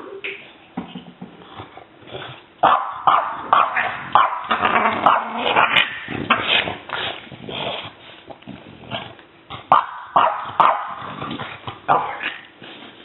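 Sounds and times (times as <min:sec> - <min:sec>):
puppy barking and growling: 0:02.6 - 0:06.8, 0:09.0 - 0:12.5.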